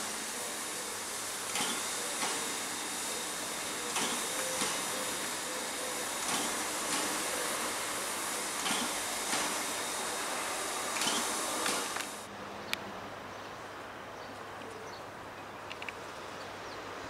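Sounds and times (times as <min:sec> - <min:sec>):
steady hiss of steam: 0:00.0 - 0:12.3
steam locomotive exhaust chuffing: 0:00.0 - 0:12.3.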